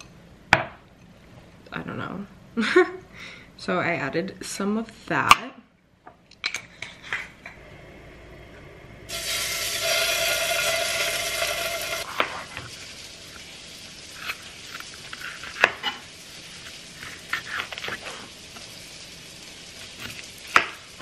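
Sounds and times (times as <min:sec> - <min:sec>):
food sizzling in hot oil: 0:09.0 - 0:21.0.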